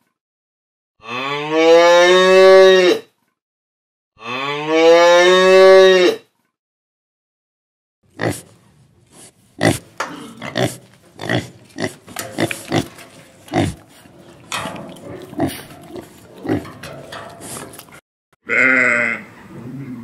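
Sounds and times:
pig grunting: 8.1 - 8.6, 9.6 - 18.0
sheep bleating: 18.4 - 19.3.

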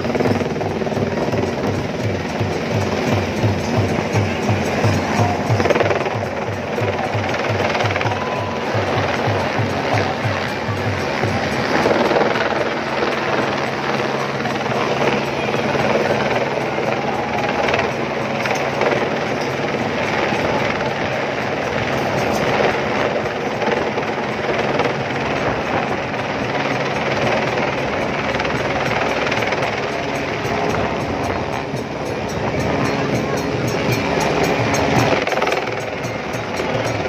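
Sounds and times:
helicopter rotor chop: 0.0 - 37.0.

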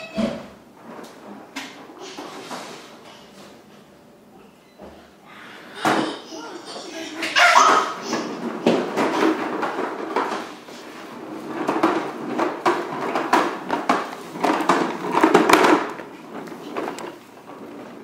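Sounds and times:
toy car wheels rolling on wood floor: 6.8 - 18.0.

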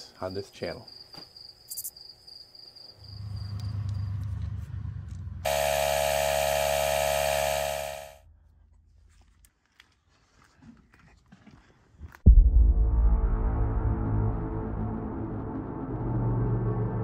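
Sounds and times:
tire inflator compressor running: 5.5 - 8.2
low rumble: 12.3 - 17.0.

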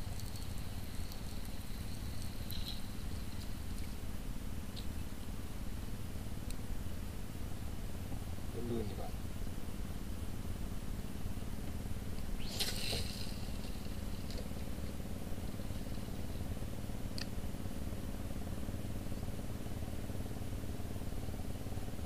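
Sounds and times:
boat engine idling: 0.0 - 22.0
fishing line whizzing off reel: 12.2 - 16.3.

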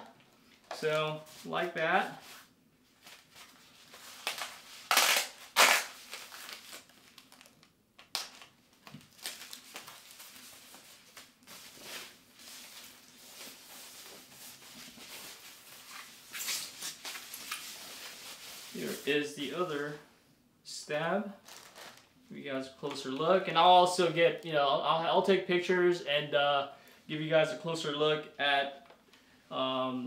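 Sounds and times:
packing wrap crinkling: 3.0 - 19.1, 21.4 - 22.1.

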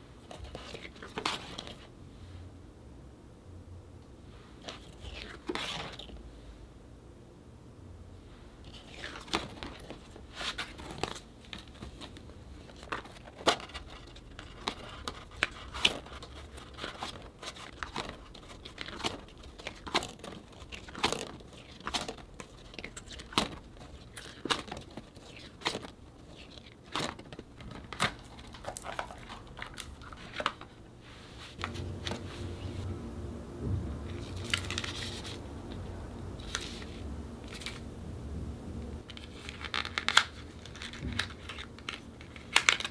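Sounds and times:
low steady hum: 0.0 - 42.9
packaging crinkling and tearing: 8.7 - 30.8, 34.1 - 35.4, 39.0 - 42.9.

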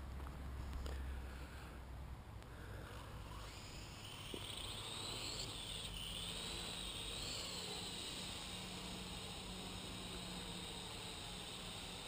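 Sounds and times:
drone propellers whining: 2.8 - 12.0.

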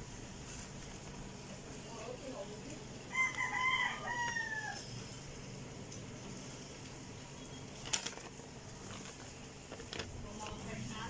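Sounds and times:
rooster crowing: 3.1 - 5.0
paper crackling: 7.7 - 10.8.

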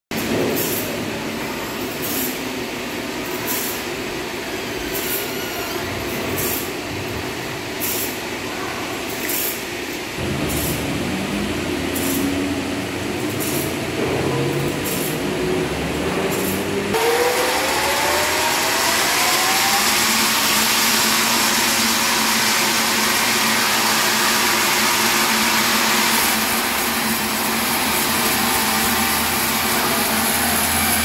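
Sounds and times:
sawmill machinery running: 10.0 - 31.0
deep motor hum: 10.2 - 20.5
rising whine: 10.2 - 22.6, 26.1 - 31.0.

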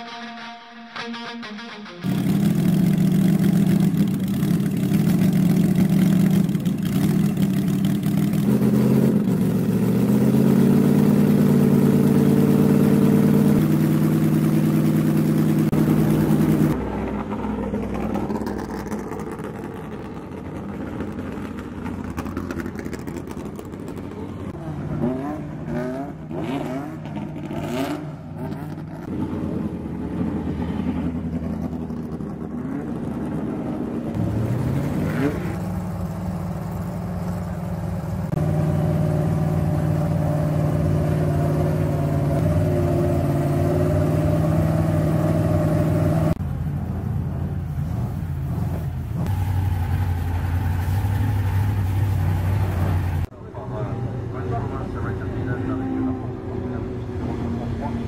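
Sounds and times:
racing engine idling with throttle blips: 0.0 - 27.4
racing car engine revving: 8.0 - 36.1, 36.7 - 46.4.

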